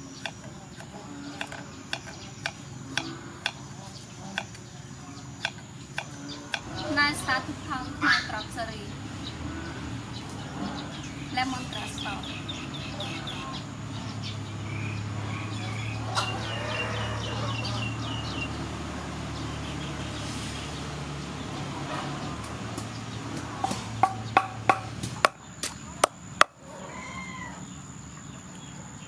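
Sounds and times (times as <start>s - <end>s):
pestle pounding in wooden mortar: 0.0s - 3.6s, 5.4s - 6.7s, 22.8s - 25.4s.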